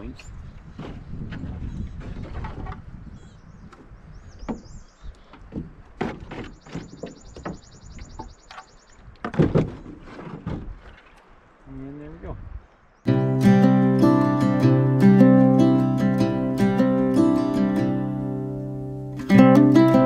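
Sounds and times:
small birds chirping: 2.9s - 5.7s, 6.3s - 9.1s
paddle knocking against hull: 5.3s - 8.6s, 9.2s - 11.2s
high bird trill: 6.5s - 9.0s.

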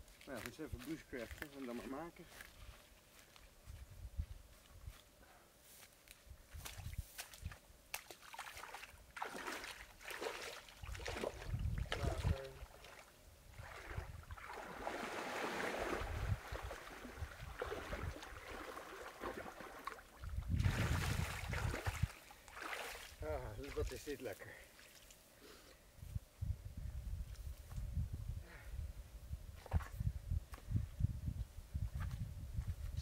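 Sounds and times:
water splashing and sloshing: 7.9s - 25.2s.

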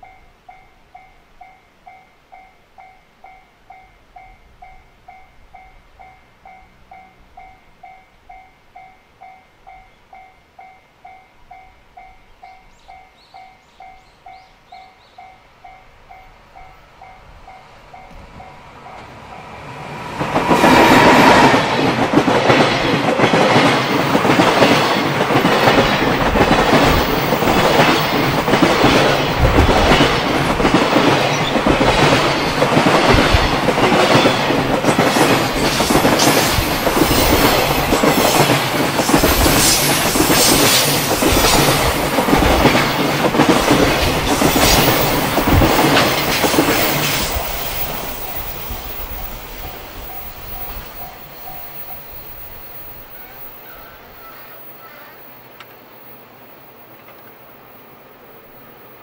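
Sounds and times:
electric locomotive passing: 0.0s - 59.0s
train wheels clattering over rail joints: 20.1s - 51.0s.

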